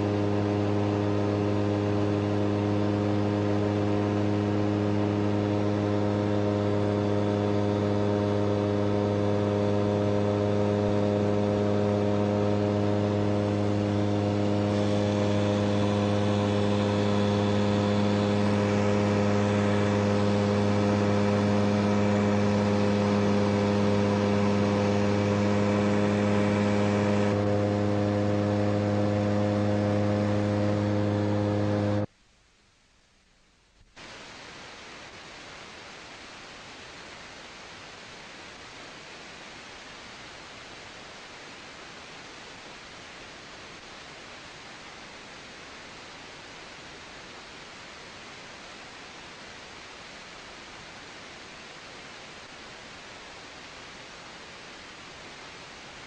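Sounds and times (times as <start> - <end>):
rushing noise: 0.0 - 32.1
two-stroke engine running: 0.0 - 32.1.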